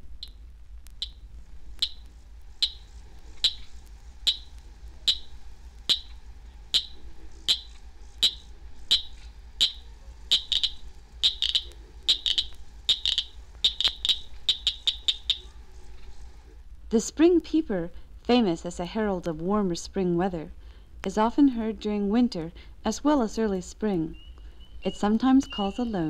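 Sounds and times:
faint steady hum: 0.0s - 26.0s
cricket frog clicking: 0.2s - 1.2s, 1.8s - 16.3s.

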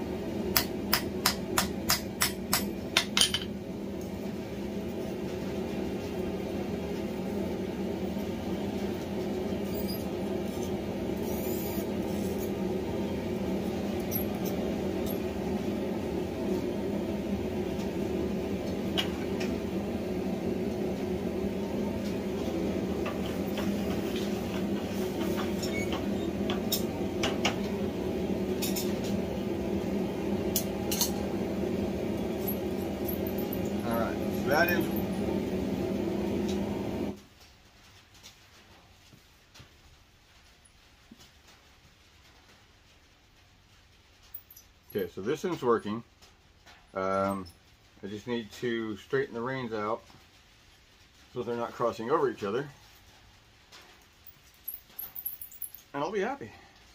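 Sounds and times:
workshop equipment humming: 0.0s - 37.2s.

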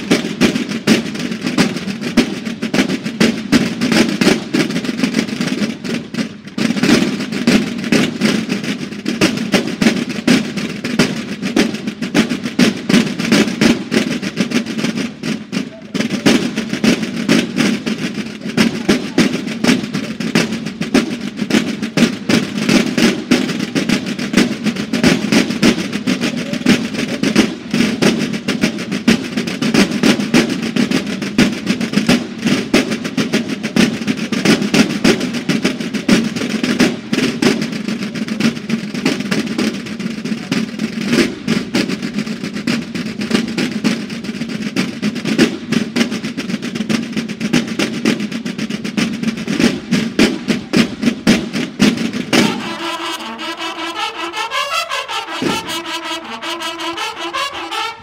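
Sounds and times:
marching snare drums: 0.0s - 58.0s.

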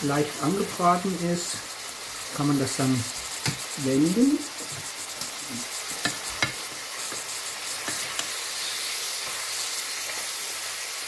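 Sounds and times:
meat sizzling in butter: 0.0s - 11.0s
clicks of pieces turned in pan: 3.4s - 3.8s, 4.6s - 10.3s.

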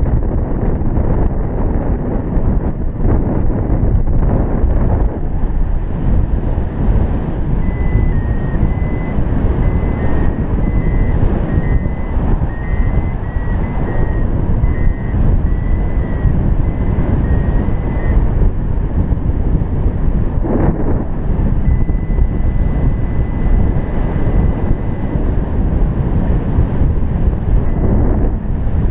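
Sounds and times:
wind rushing over microphone: 0.0s - 28.9s
variometer short high beeps: 1.1s - 1.7s, 3.6s - 4.2s, 7.6s - 18.2s, 21.7s - 25.2s, 27.6s - 28.2s.

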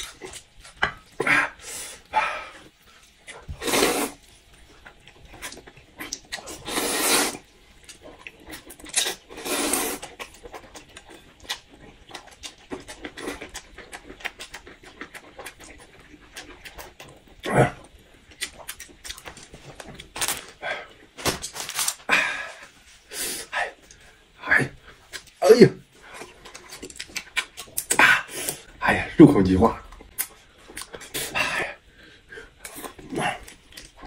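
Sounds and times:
noodles being slurped: 3.4s - 4.3s, 5.3s - 7.4s, 8.5s - 10.3s
wet chewing and lip smacks: 26.1s - 28.0s.

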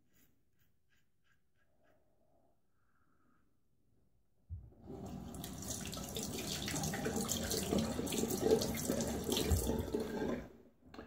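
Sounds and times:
tap running into sink: 5.0s - 10.3s.

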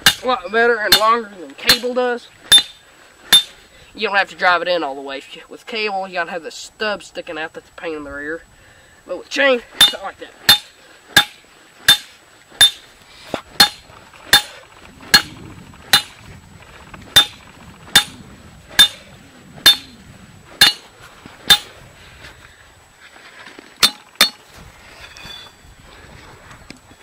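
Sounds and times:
hammer striking metal: 0.0s - 0.2s, 2.5s - 3.6s, 9.8s - 12.8s, 13.6s - 14.5s, 15.9s - 16.1s, 17.2s - 18.2s, 18.8s - 19.0s, 19.6s - 19.9s, 20.6s - 20.9s, 21.5s - 21.7s, 23.8s - 24.4s.

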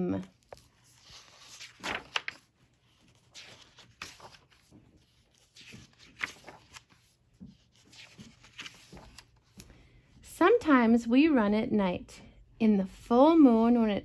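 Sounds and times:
book pages turning: 0.2s - 9.7s.

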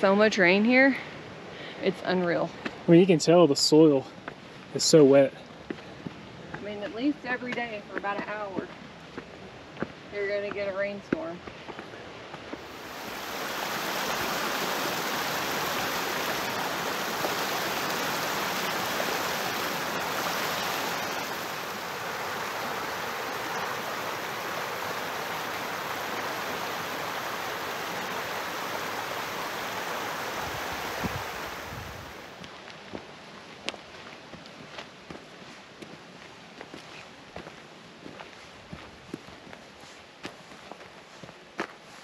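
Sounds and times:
creek rushing over rocks: 12.6s - 32.5s.

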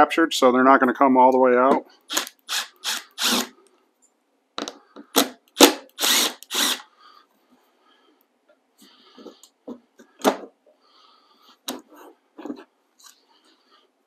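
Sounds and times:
impact driver bursts: 2.1s - 3.5s, 5.2s - 6.9s.

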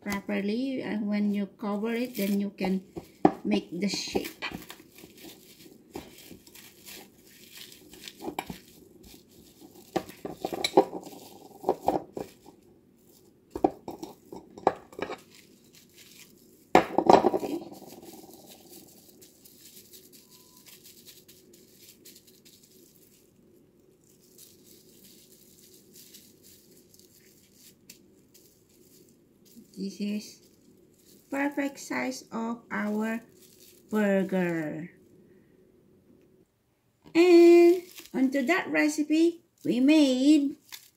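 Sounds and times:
rustling of plastic wrap: 0.0s - 35.2s, 37.2s - 40.9s
plates clinking on stone countertop: 10.0s - 12.2s, 13.6s - 15.2s, 16.8s - 17.6s.

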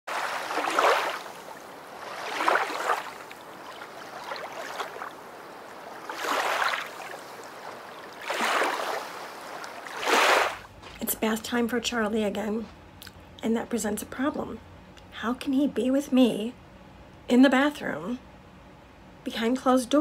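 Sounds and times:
ocean waves washing in: 0.1s - 10.7s.

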